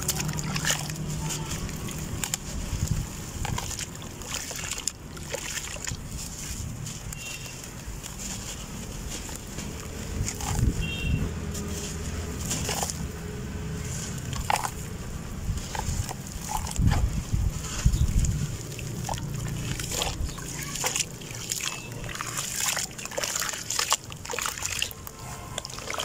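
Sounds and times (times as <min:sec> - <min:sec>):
hands crumbling dirt: 0:00.0 - 0:13.2
dirt pieces falling into water: 0:00.0 - 0:26.0.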